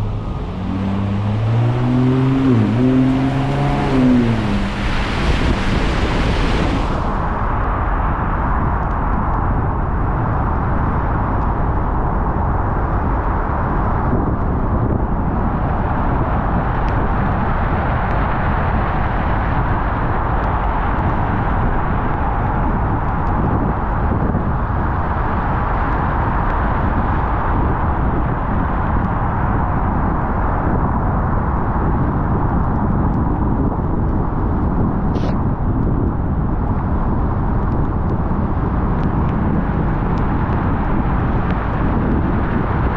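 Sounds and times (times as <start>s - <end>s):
tyres hissing on wet road: 0.0s - 7.4s
car engine rumble: 0.0s - 42.9s.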